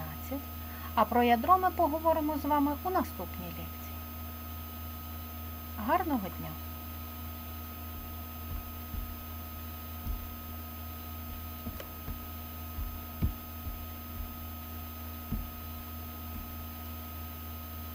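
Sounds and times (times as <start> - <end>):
electrical hum: 0.0 - 17.9
soft low bumps: 7.2 - 16.8.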